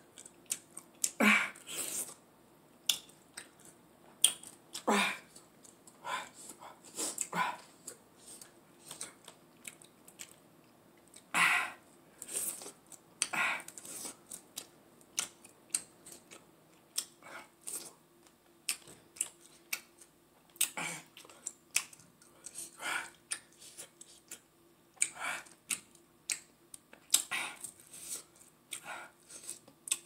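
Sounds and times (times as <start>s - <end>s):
lip smacks and clicks: 2.8s - 4.6s, 25.0s - 27.8s, 29.5s - 30.0s.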